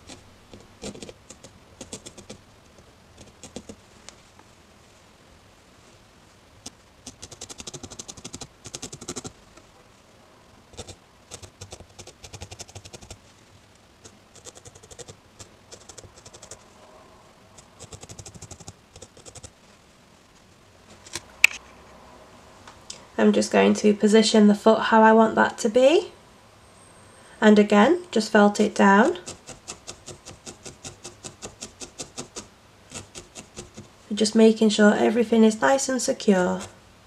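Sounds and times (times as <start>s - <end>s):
felting needle jabbing into wool: 6.7s - 9.3s, 29.2s - 33.9s.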